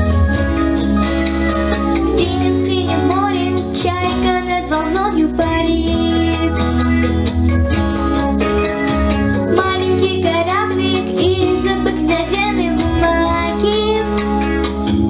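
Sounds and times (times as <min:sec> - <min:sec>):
backing track drums and bass: 0:00.0 - 0:15.0
girl singing into microphone: 0:02.0 - 0:07.0, 0:09.5 - 0:14.6.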